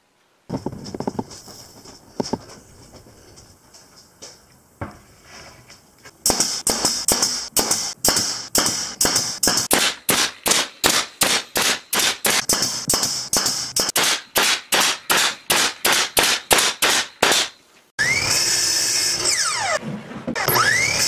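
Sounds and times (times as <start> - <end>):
nailer shots with air hiss: 6.1 - 17.6.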